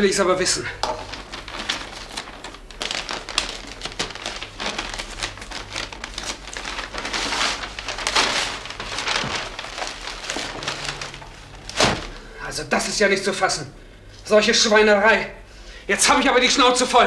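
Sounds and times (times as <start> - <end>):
crumpled newspaper rustling: 0.1 - 13.2
wrapping paper tearing: 0.8 - 12.3.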